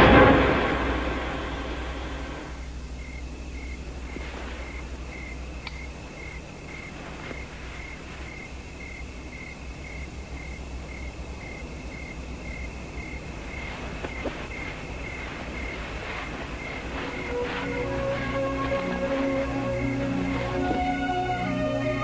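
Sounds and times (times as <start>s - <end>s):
crickets chirping: 0.0s - 22.0s
steady low rumble: 0.0s - 22.0s
faint clicks: 5.6s - 5.9s.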